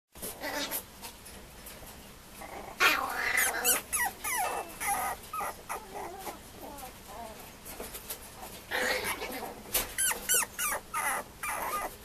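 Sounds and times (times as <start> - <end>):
puppy whimpering and yipping: 2.8 - 7.4, 8.8 - 12.0.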